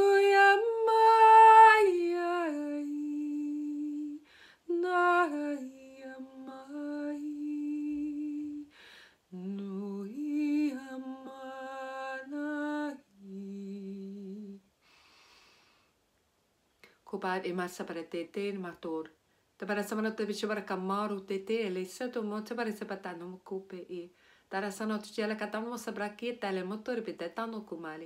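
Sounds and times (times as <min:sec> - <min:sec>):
woman singing wordless tones: 0:00.0 - 0:14.7, 0:16.8 - 0:28.0
breaths: 0:04.2 - 0:04.7, 0:08.7 - 0:09.3, 0:14.8 - 0:16.0, 0:24.1 - 0:24.5.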